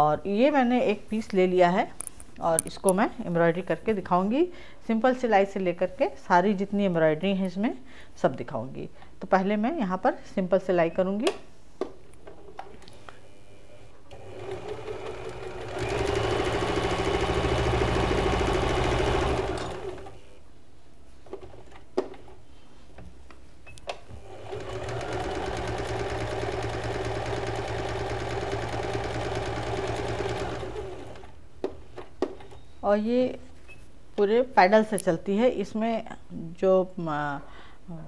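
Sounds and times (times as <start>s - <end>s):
electric sewing machine running: 14.1s - 20.4s, 24.2s - 31.4s.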